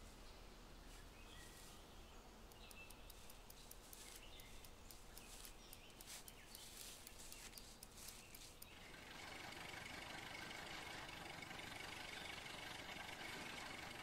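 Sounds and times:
faint bird chirps: 0.2 - 9.0
light quick clicks: 2.5 - 8.8.

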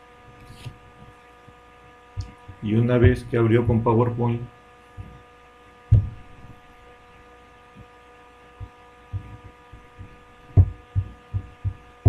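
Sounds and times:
electrical hum: 0.0 - 12.0
microphone hiss: 0.0 - 12.0
dull low thumps: 2.2 - 3.9, 5.9 - 6.6, 8.6 - 12.0.

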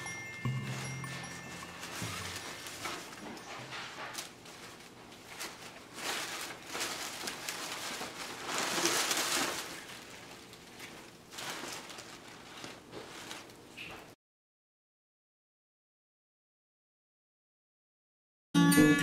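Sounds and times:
tissue paper rustling: 0.0 - 14.1.

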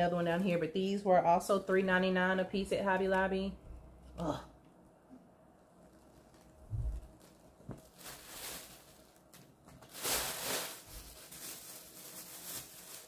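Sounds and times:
rustling and handling noises: 5.6 - 13.0.

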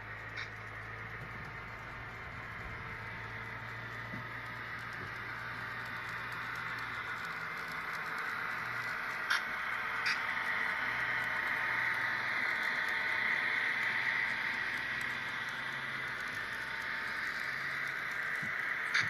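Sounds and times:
model train hiss and hum: 0.0 - 19.0.

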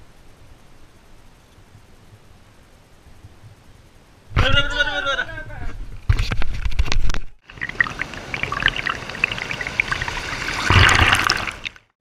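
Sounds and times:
water bubbling and trickling: 7.4 - 11.9
sea water sloshing and splashing: 7.5 - 11.9.

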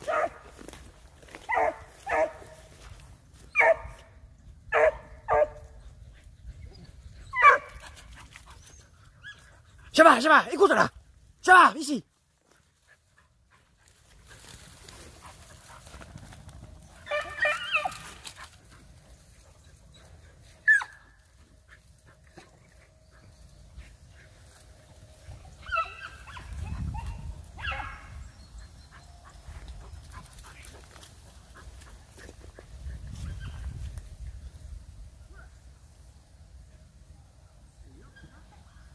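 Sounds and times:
hounds baying: 4.7 - 10.0, 12.8 - 33.6
dog yelping: 7.3 - 7.9, 17.0 - 18.2, 20.6 - 21.1, 25.6 - 28.1.

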